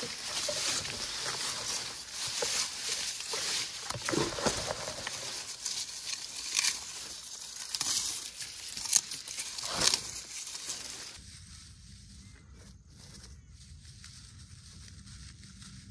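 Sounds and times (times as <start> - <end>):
twigs cracking: 0.0 - 11.2
dry leaves and twigs rustling: 0.0 - 15.9.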